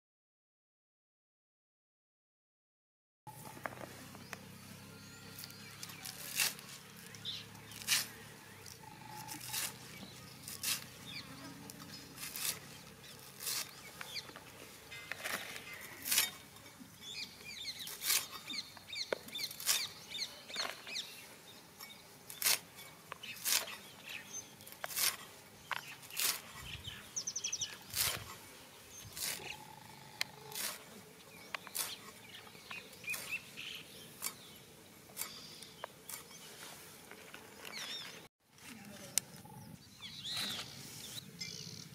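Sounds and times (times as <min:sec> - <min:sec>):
birds chirping faintly: 0:03.3 - 0:41.9
knife cutting herb stalks: 0:05.4 - 0:16.4, 0:17.8 - 0:21.0, 0:21.8 - 0:26.7, 0:27.7 - 0:28.5, 0:29.1 - 0:29.6, 0:30.4 - 0:33.4, 0:34.2 - 0:36.4.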